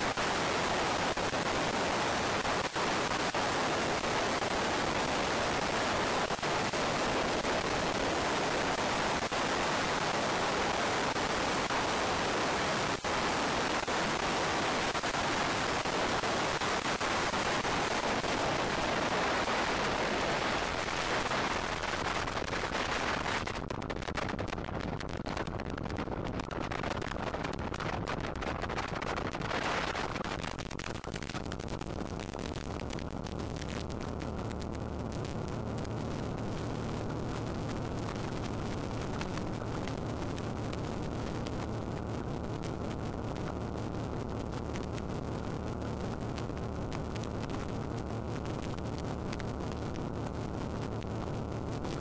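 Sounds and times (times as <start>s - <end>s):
engine crackling pops: 15.8s - 52.0s.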